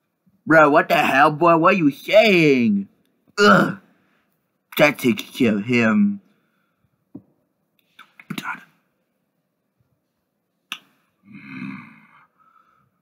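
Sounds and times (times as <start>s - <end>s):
murmured vocal sound: 11.3s - 12.3s.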